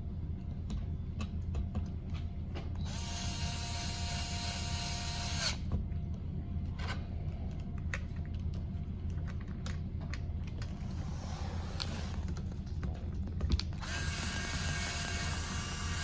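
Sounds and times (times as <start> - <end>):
electric screwdriver whirring: 13.8 - 16.0.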